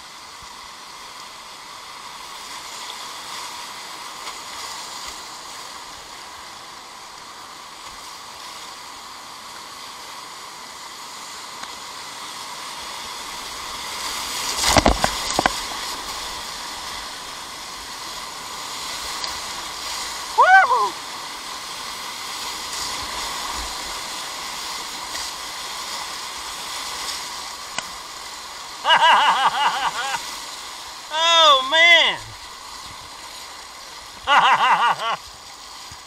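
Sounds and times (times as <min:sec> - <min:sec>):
whitewater rushing: 0:10.8 - 0:36.0.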